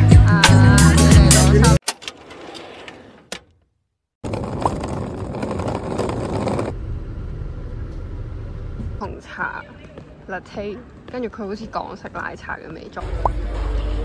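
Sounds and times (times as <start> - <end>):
music: 0.0 - 1.8, 13.0 - 14.0.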